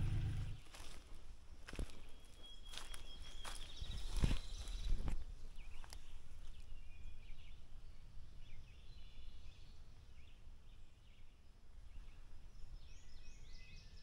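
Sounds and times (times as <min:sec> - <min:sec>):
low rumble: 0:00.0 - 0:00.6
faint bird chirps: 0:01.9 - 0:14.0.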